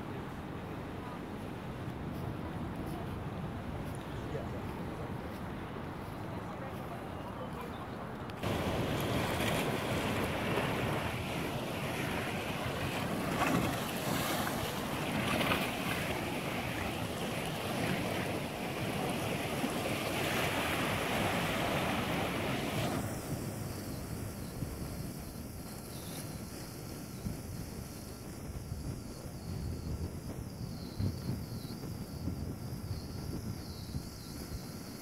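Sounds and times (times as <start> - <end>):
wind buffeting microphone: 0.0 - 35.0
sea surf breaking on rocks: 8.4 - 26.9.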